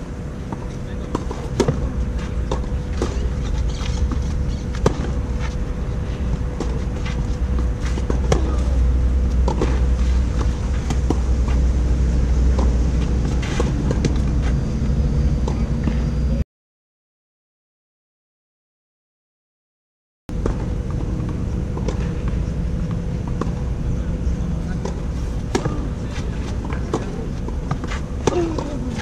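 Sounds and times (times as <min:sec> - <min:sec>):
steady low rumble: 0:00.0 - 0:16.4, 0:20.3 - 0:29.0
tennis ball bouncing: 0:00.5 - 0:05.6, 0:06.4 - 0:14.6, 0:24.8 - 0:29.0.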